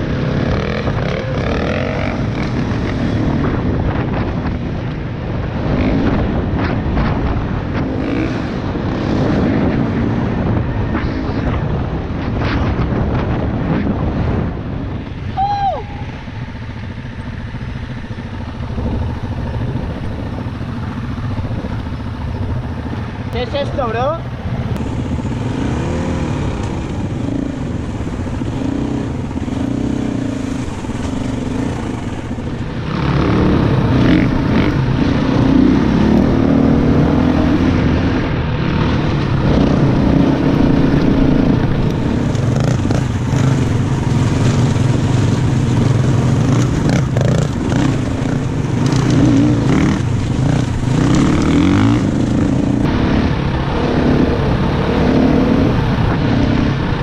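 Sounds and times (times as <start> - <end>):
dirt bike engine revving: 0.0 - 4.5, 5.5 - 11.5, 24.7 - 57.0.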